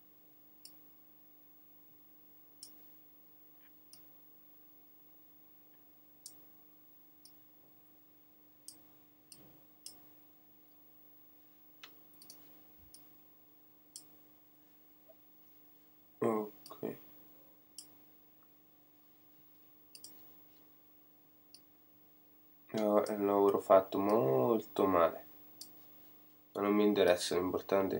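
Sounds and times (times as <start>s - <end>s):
faint steady hum: 0.0s - 27.9s
computer mouse clicks: 11.8s - 13.0s, 19.9s - 20.2s.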